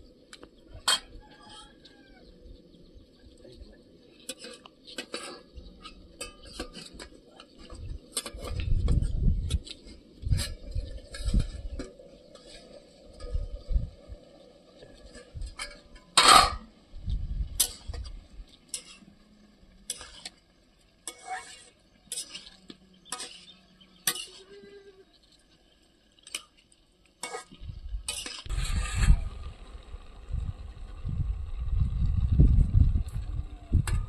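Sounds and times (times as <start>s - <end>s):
metal utensil scraping a pot: 0.7s - 1.8s, 4.0s - 16.7s, 17.5s - 19.2s, 19.8s - 25.1s, 27.2s - 29.2s
low rumble: 27.6s - 34.0s.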